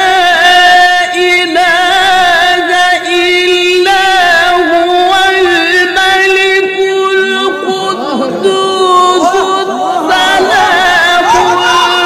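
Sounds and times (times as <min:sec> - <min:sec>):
man reciting a long note: 0:00.0 - 0:12.0
voices crying out: 0:07.6 - 0:12.0.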